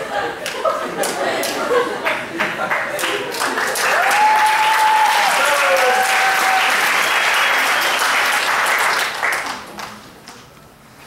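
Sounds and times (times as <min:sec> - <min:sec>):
audience applauding and cheering: 0:02.0 - 0:10.0.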